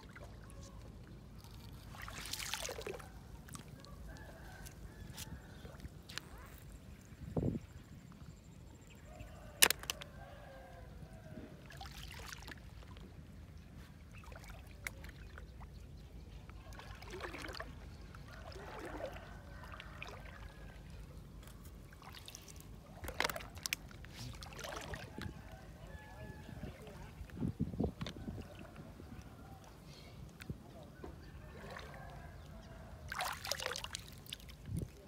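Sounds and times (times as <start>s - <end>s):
hand splashing in shallow water: 1.8s - 3.8s, 33.1s - 34.5s.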